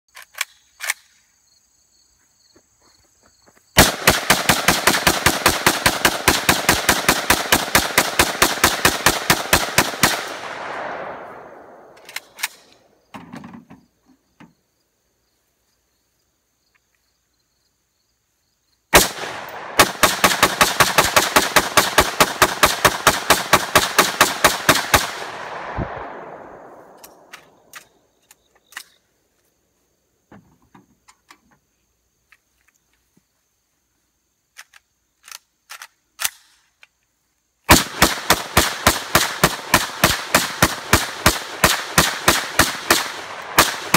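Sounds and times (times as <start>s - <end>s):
rifle shots in rapid strings: 3.8s - 11.9s, 19.0s - 26.9s, 37.7s - 43.9s.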